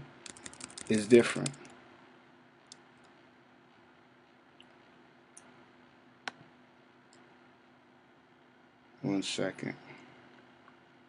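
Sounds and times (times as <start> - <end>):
faint steady hum: 0.0 - 11.0
computer clicks: 0.2 - 1.8.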